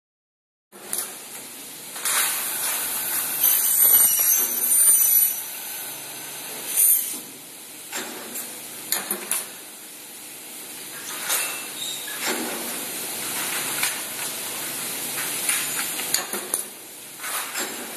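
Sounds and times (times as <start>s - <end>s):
saw cutting metal screeching: 2.3s - 7.2s.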